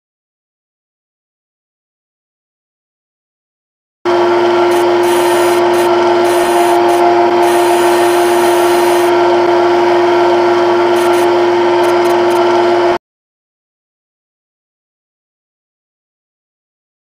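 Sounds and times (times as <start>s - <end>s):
synthetic lathe machine hum: 4.1s - 13.0s.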